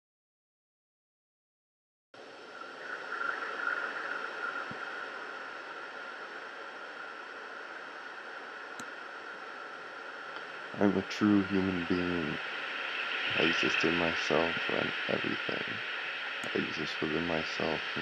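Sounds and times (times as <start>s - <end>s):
faint hum: 2.2s - 18.0s
steady rushing noise: 2.2s - 18.0s
faint clicks: 8.8s - 9.0s.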